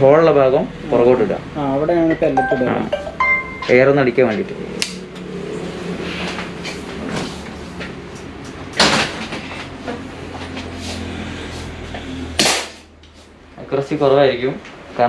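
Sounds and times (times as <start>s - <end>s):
sharp snap: 4.8s - 5.0s, 12.4s - 12.8s.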